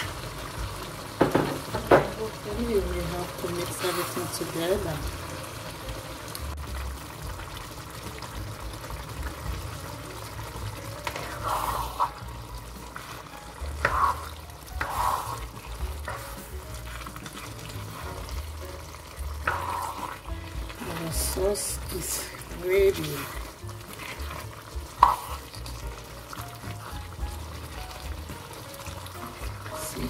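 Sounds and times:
spoon stirring stew in a pan: 0.0 - 30.0
stew sizzling: 0.0 - 30.0.

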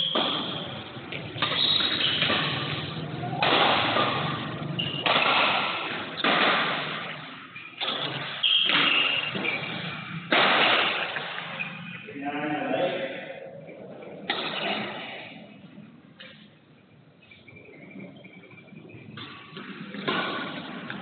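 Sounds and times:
racket hitting shuttlecock: 0.0 - 11.9, 14.3 - 15.3, 19.2 - 21.0
echo in hall: 0.0 - 16.6.

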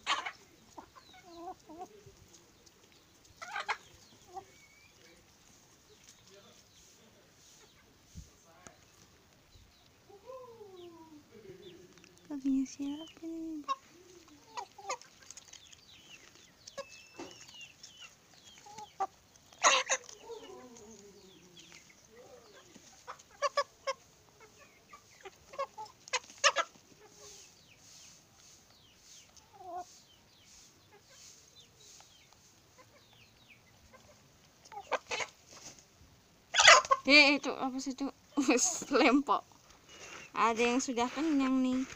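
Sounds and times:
chickens clucking and chirping: 0.0 - 41.9
chicken falling call: 36.5 - 37.1.

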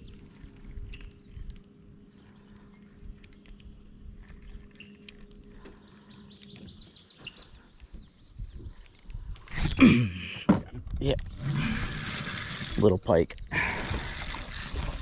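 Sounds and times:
small clicks: 0.0 - 6.7.

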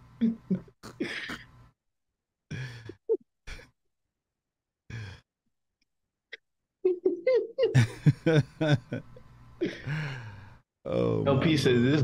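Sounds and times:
men laughing softly: 6.8 - 10.3.

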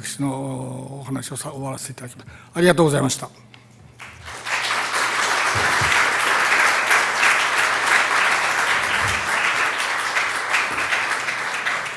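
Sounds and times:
audience applauding: 4.0 - 11.9.

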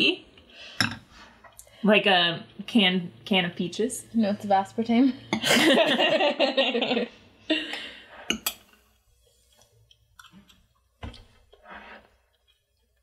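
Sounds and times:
quiet eating sounds: 0.3 - 1.8, 7.5 - 13.0
people laughing: 5.4 - 7.2.

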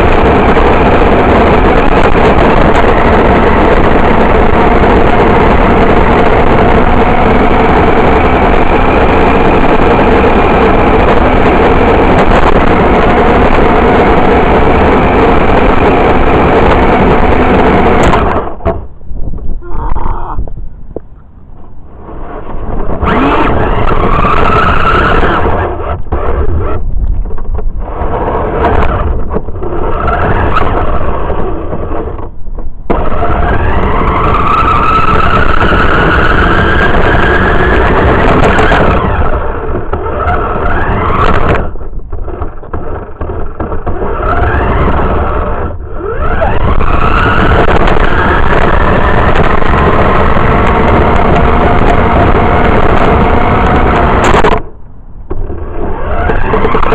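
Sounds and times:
wheels rattling on rough pavement: 0.0 - 56.9
rc car motor whining: 22.0 - 32.3, 32.9 - 54.7, 55.3 - 56.9.

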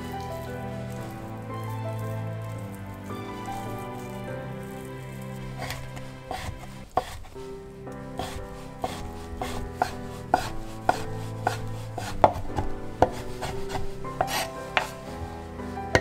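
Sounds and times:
knife chopping on wooden board: 5.6 - 7.3, 8.2 - 15.0.

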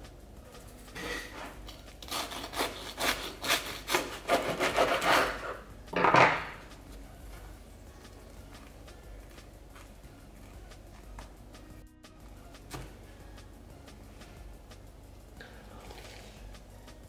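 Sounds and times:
knife sawing through toasted sandwich: 2.0 - 5.6.

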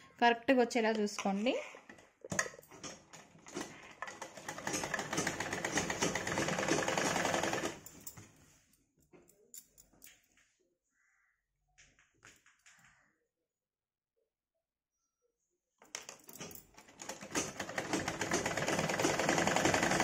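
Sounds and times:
sewing machine stitching: 2.8 - 7.8, 16.8 - 20.0.

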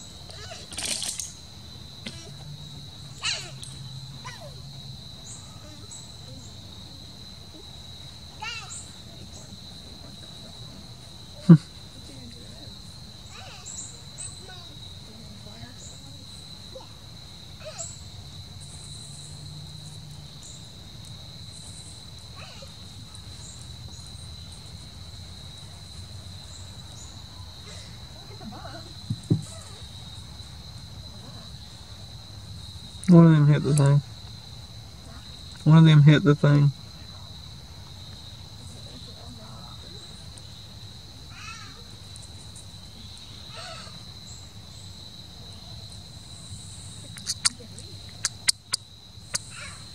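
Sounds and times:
crickets trilling: 0.0 - 49.9
insects singing: 0.0 - 49.9
short distant calls: 3.1 - 6.6, 46.8 - 49.9.

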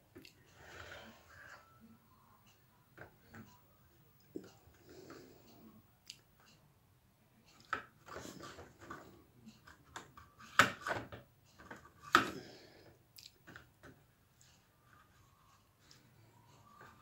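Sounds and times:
plastic clattering and knocking: 7.6 - 12.4.

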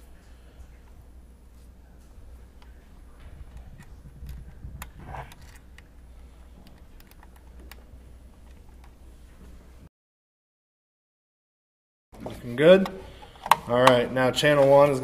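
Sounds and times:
low steady hum: 0.0 - 9.9, 12.2 - 15.0
scrape on terminal: 1.5 - 6.7
wire clicks and rustling: 1.6 - 9.6.

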